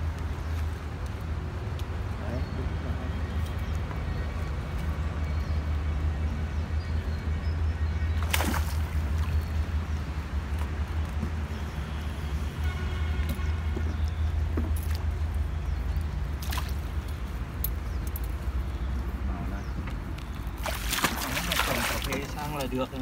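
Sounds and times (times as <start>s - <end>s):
water sloshing and splashing: 8.1s - 12.1s, 13.3s - 18.2s, 20.2s - 23.0s.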